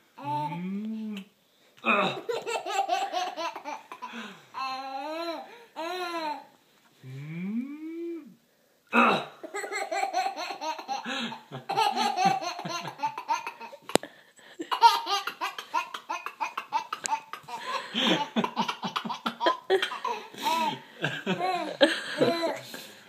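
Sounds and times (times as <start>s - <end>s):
baby laughing: 2.1s - 6.4s, 9.4s - 14.0s, 14.6s - 22.6s.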